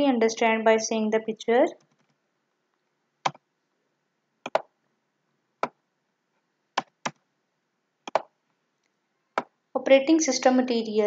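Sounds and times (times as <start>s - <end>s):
computer mouse clicks: 1.8s - 3.5s, 4.4s - 4.7s, 6.8s - 7.3s, 8.0s - 9.6s.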